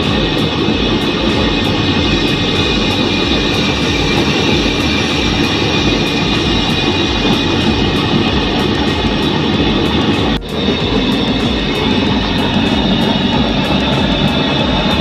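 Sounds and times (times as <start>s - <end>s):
gas burner roaring: 0.0s - 15.0s
low blower hum: 0.0s - 15.0s.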